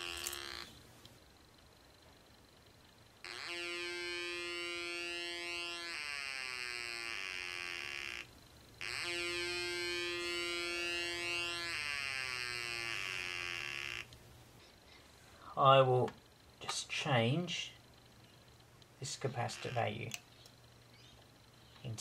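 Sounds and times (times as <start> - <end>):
electronic siren tone: 3.2 - 14.1.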